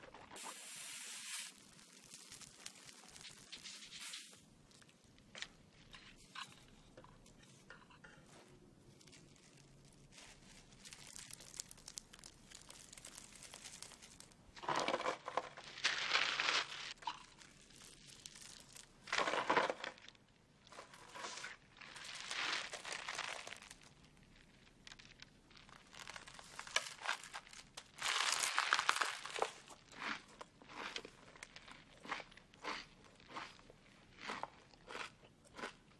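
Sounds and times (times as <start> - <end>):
dry cereal crunching: 0.0 - 6.1, 8.9 - 35.8
plastic wrapping crinkling: 0.1 - 6.6, 8.9 - 20.2, 20.8 - 30.0.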